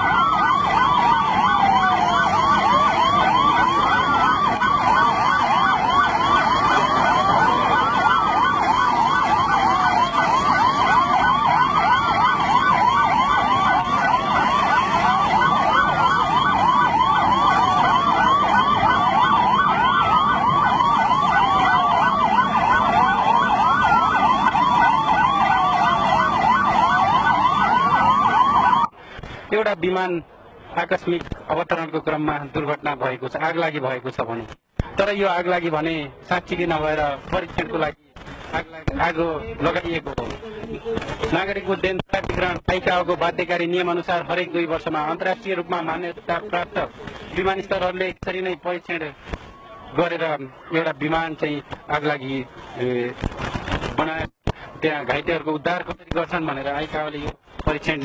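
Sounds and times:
fast yelping siren: 0.0s - 28.9s
wailing siren sweeping down: 0.0s - 28.9s.

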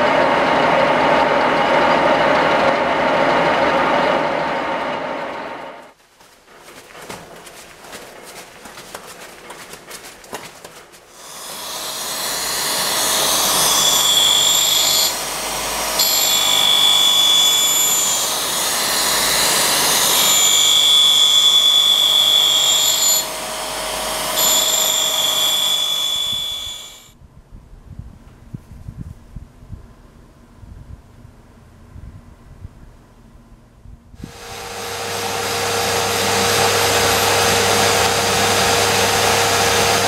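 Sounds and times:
grinding wheel with high whine: 0.0s - 5.9s, 11.2s - 27.1s, 34.2s - 40.0s
lathe running with light ticking: 11.2s - 27.1s, 34.3s - 40.0s.

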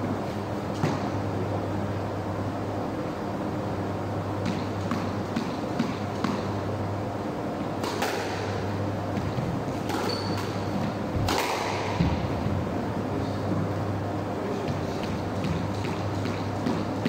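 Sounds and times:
steady low hum: 0.0s - 17.0s
brief high squeak: 10.0s - 10.5s.

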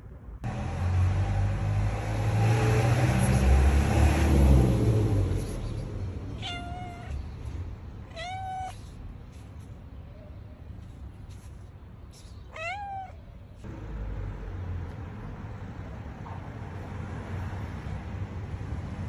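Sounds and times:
cat meowing: 6.3s - 7.4s, 8.0s - 9.0s, 12.4s - 13.3s.

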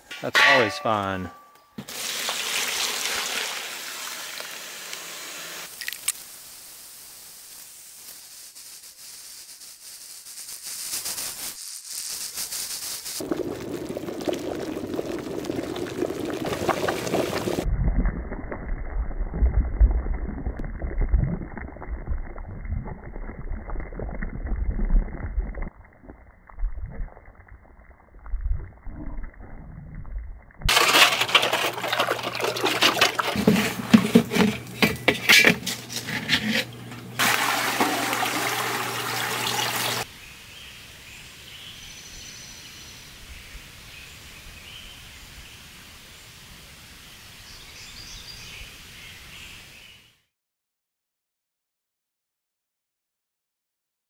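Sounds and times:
lime boiling and bubbling in water: 1.9s - 40.1s
lime sloshing and scraping: 30.7s - 38.7s.

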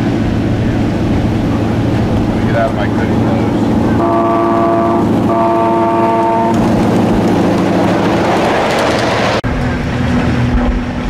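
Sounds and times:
steady low hum: 0.0s - 7.8s
train rumbling past: 0.0s - 11.0s
miniature locomotive horn: 4.0s - 6.7s.

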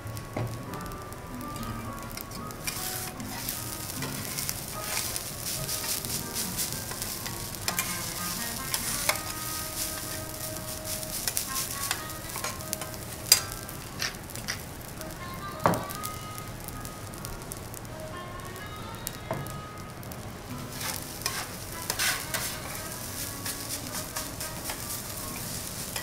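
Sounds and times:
rice sizzling on a griddle: 0.0s - 26.0s
metal spatulas scraping and tapping: 2.2s - 14.6s, 20.7s - 26.0s.

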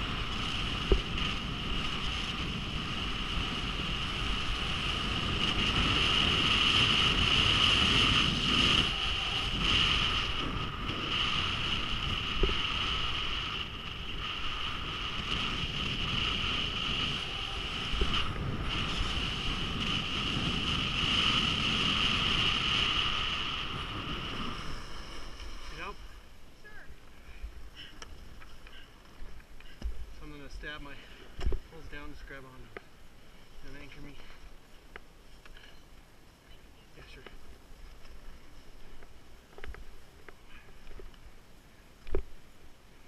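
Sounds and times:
skis sliding on snow: 0.0s - 26.2s
wind on microphone: 0.0s - 34.2s.

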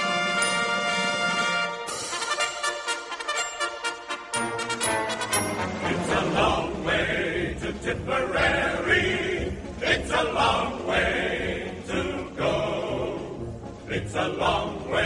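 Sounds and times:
choir singing with instruments: 4.4s - 15.0s.

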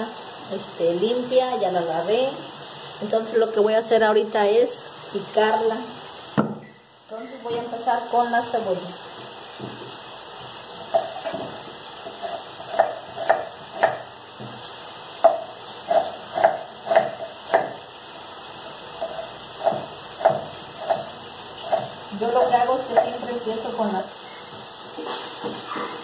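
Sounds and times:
knife chopping on wooden board: 10.9s - 14.6s, 15.2s - 17.8s, 19.0s - 21.1s.

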